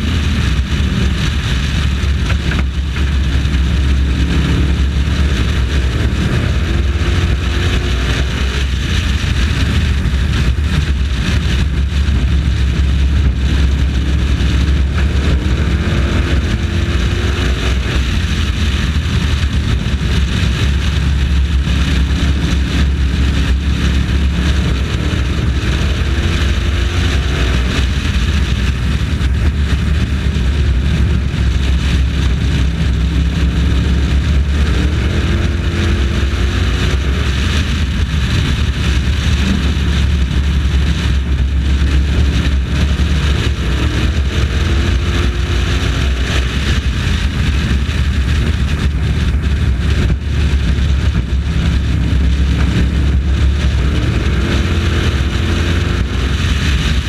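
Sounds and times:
race truck engine running hard: 0.0s - 57.0s.

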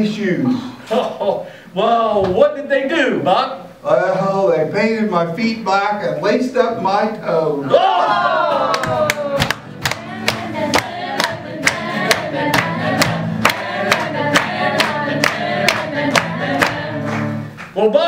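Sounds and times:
group singing in unison: 8.3s - 17.6s
group clapping a beat: 8.6s - 17.9s.

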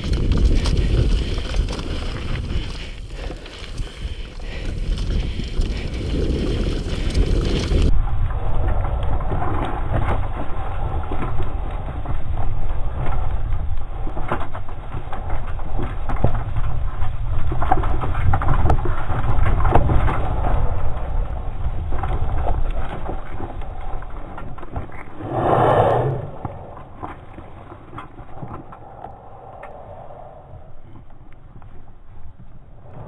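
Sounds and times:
wind buffeting microphone: 0.0s - 24.4s, 25.0s - 33.0s
bike rattling over rocks: 0.0s - 25.2s.

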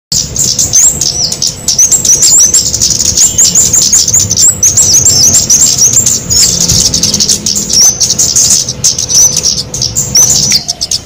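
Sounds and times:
high thin bird chirps: 0.1s - 11.0s.

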